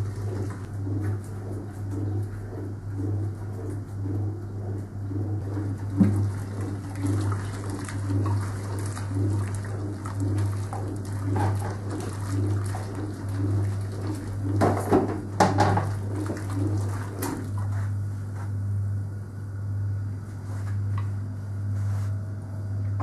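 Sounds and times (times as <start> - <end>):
agitator swishing water: 0.0 - 18.0
washing machine motor hum: 0.0 - 23.0.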